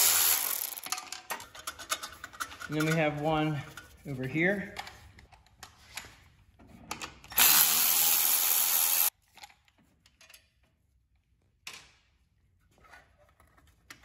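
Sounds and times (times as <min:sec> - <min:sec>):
tool and metal clicks: 0:00.0 - 0:03.2.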